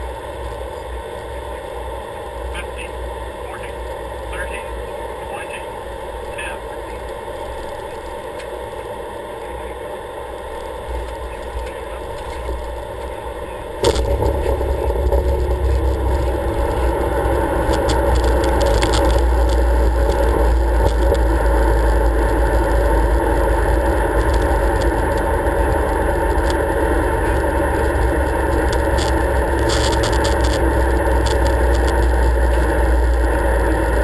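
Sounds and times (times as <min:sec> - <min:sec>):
aircraft cockpit noise: 0:00.0 - 0:34.0
wheels touching down thud: 0:13.8 - 0:33.2
landing roll rumble: 0:13.8 - 0:34.0.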